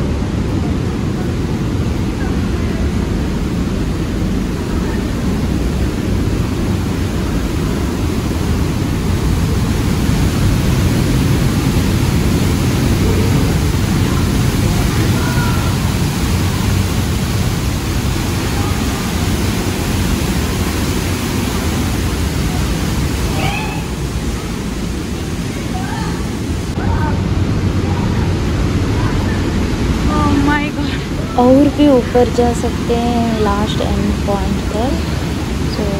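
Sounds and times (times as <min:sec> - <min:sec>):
waterfall rushing: 0:00.0 - 0:35.9.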